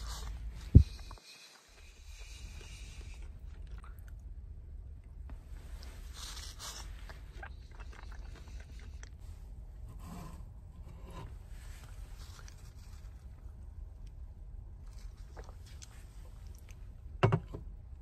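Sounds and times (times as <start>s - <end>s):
steady low hum: 0.0s - 18.0s
chewing: 0.1s - 4.3s, 5.7s - 9.2s, 14.9s - 16.9s.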